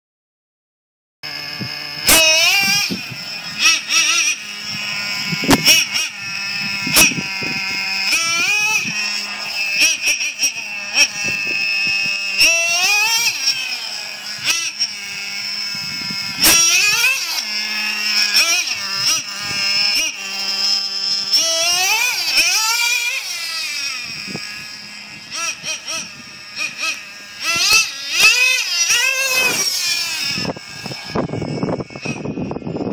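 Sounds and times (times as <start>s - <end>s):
rc car engine revving: 1.2s - 32.9s.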